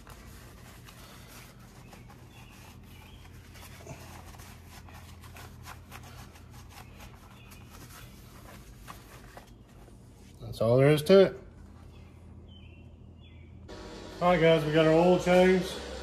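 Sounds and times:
rag rubbing and scuffing: 0.0s - 10.4s.

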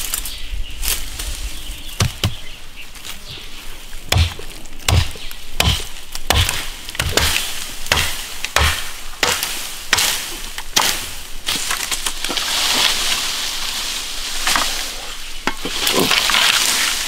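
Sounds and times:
hand tool chopping blows: 4.1s - 11.1s.

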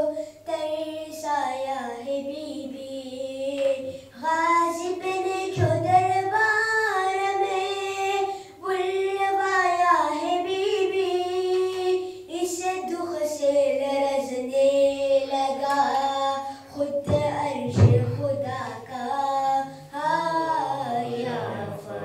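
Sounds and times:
boy singing a devotional chant: 0.0s - 22.0s
singer breathing: 8.3s - 8.6s, 12.0s - 12.3s, 16.4s - 16.7s.

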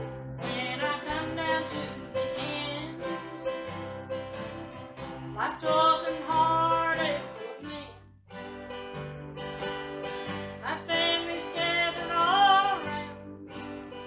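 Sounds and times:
acoustic guitar strumming: 0.0s - 14.0s
person singing: 0.4s - 3.9s, 5.3s - 8.0s, 10.6s - 14.0s.

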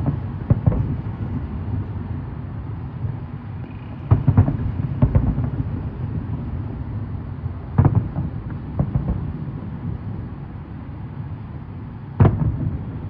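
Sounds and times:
firework shells booming: 0.0s - 1.7s, 4.0s - 6.5s, 7.7s - 10.0s, 12.2s - 13.0s
continuous low rumble: 0.0s - 13.0s.

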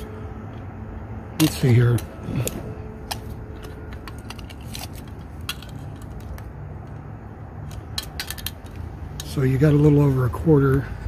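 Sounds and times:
tape measure metallic clicks: 1.4s - 9.4s.

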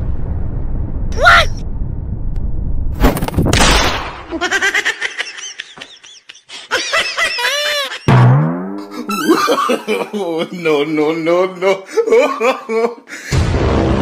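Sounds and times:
loud low rising sound: 0.0s - 3.0s
explosion blast: 0.0s - 4.4s
rumble: 0.0s - 4.4s
high-pitched comic sounds: 7.6s - 9.8s.

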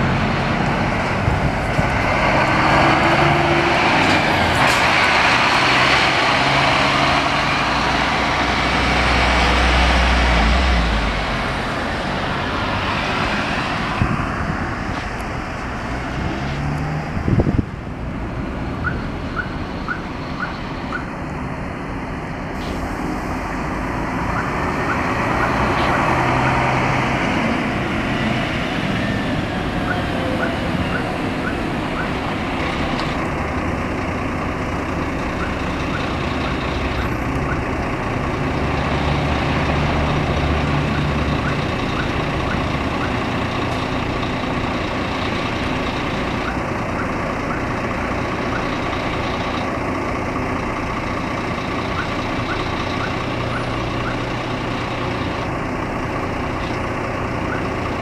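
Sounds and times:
diesel engine idling: 17.1s - 58.0s.

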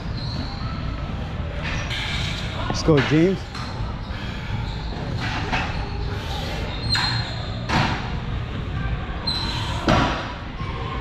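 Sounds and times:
weight room background noise: 0.0s - 11.0s.

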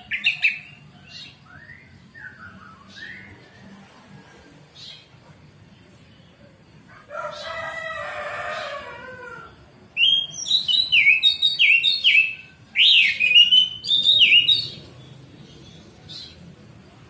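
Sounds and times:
rooster crowing: 6.9s - 9.8s.

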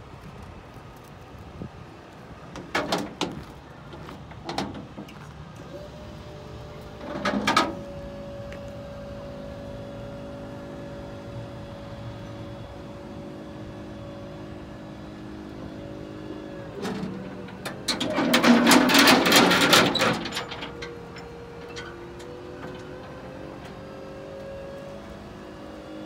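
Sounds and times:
metal platform clanking: 16.8s - 23.2s.

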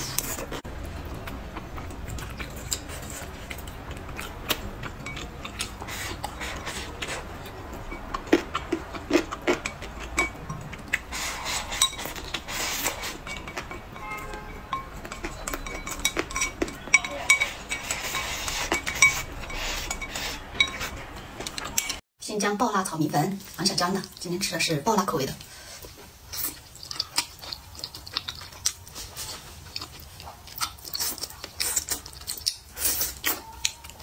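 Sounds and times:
chopsticks clinking on ceramic bowl: 4.8s - 5.7s, 11.7s - 22.0s.

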